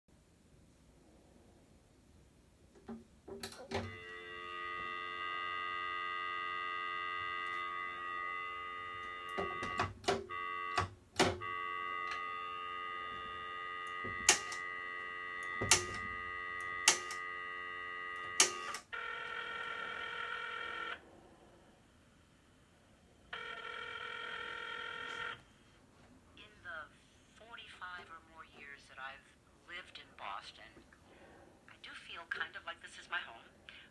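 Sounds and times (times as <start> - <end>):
telephone dial tone: 3.5 - 21.0, 23.3 - 25.5
telephone ringing tone: 3.6 - 21.0, 23.3 - 25.5
rotary dial clicks: 16.6 - 17.3, 18.2 - 18.9.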